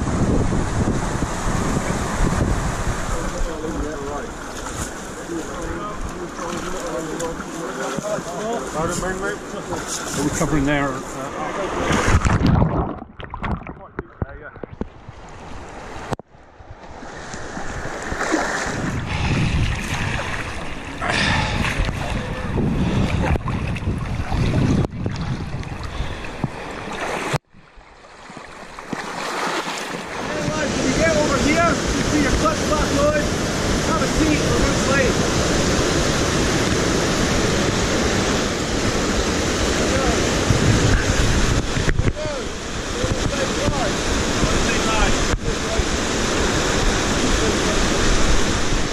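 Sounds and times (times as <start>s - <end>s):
water rushing over rocks: 0.0s - 14.8s, 17.3s - 27.5s, 28.2s - 48.9s
river rapids rushing and splashing: 28.5s - 48.9s.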